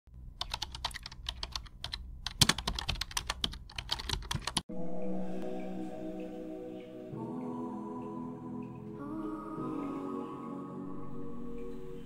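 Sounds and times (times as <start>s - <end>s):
keyboard typing clicks: 0.4s - 4.6s
soft background music: 4.7s - 12.0s.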